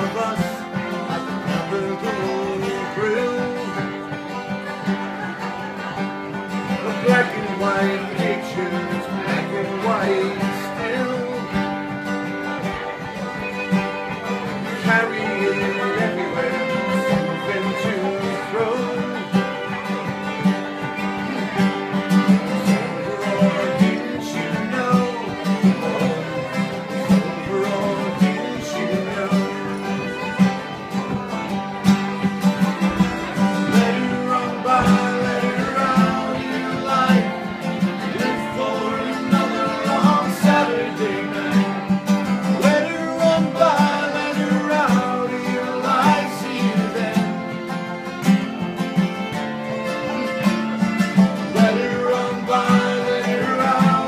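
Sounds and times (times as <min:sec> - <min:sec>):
people singing: 0:00.0 - 0:48.6, 0:49.2 - 0:54.0
acoustic guitars strumming: 0:00.0 - 0:54.0
banjo: 0:00.0 - 0:54.0
fiddle: 0:00.0 - 0:54.0.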